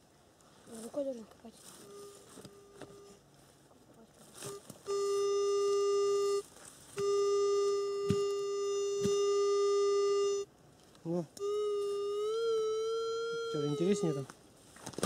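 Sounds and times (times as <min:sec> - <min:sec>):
metal detector buzzy tone: 0:01.7 - 0:03.2, 0:04.3 - 0:10.5, 0:11.4 - 0:14.3.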